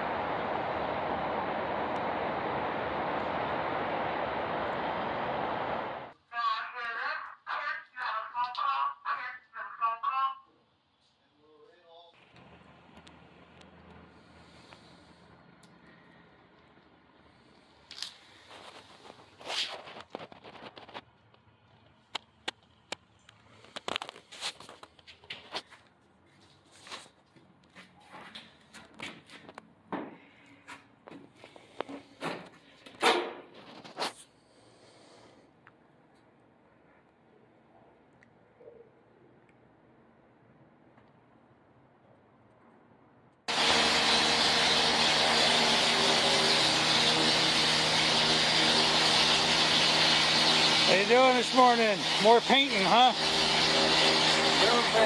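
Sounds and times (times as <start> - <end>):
mechanical running noise: 43.5 - 55.0.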